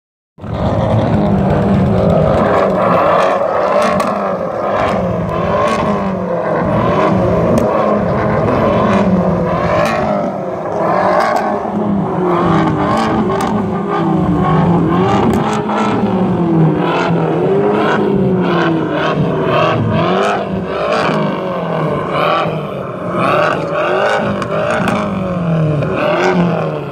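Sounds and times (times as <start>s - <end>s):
sharp exhaust cracks: 0.4s - 16.1s
car engines revving: 0.4s - 26.9s.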